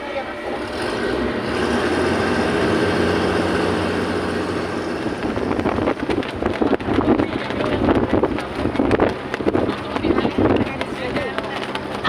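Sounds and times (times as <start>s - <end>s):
motor engine humming: 0.0s - 12.0s
wind noise: 2.9s - 12.0s.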